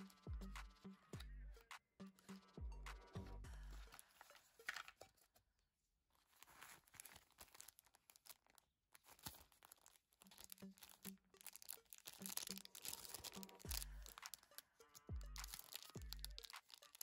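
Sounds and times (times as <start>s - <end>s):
sticker sheets crinkling: 3.8s - 5.4s, 6.1s - 17.0s.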